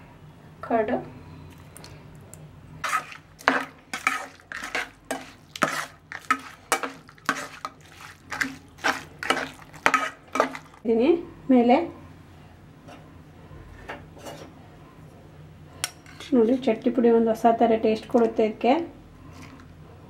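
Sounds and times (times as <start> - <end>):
spatula scraping and knocking pan: 2.8 - 10.8.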